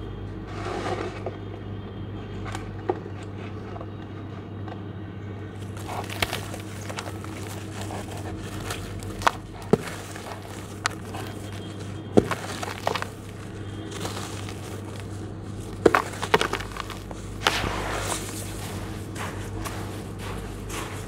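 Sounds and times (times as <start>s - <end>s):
charcoal lumps crunching: 5.6s - 21.0s
gritty crumbling: 5.6s - 21.0s.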